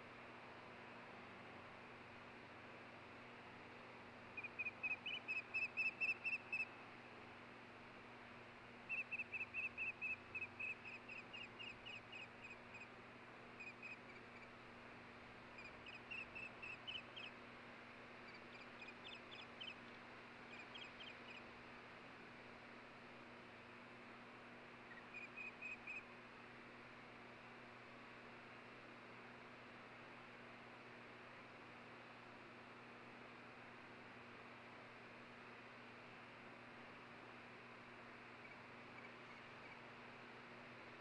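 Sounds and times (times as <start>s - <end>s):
osprey whistled chirps: 4.4s - 6.7s, 8.9s - 12.9s, 13.6s - 14.5s, 15.6s - 17.3s, 18.2s - 19.8s, 20.5s - 21.4s, 24.9s - 26.0s.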